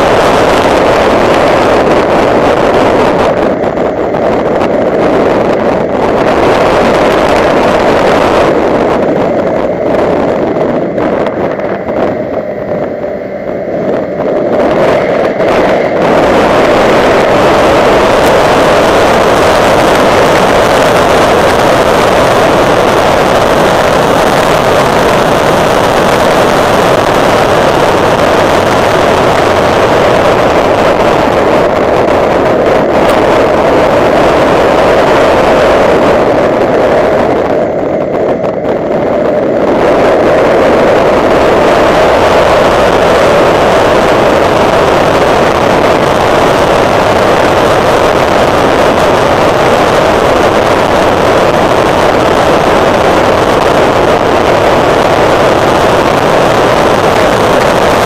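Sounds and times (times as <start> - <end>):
car driving at speed: 0.0 - 58.0.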